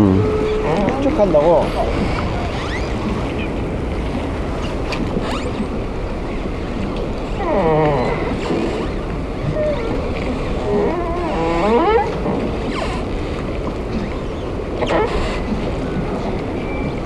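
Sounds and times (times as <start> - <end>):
wavering pitched calls: 0.0 - 3.6
harbour water: 0.0 - 17.0
wind on microphone: 0.0 - 17.0.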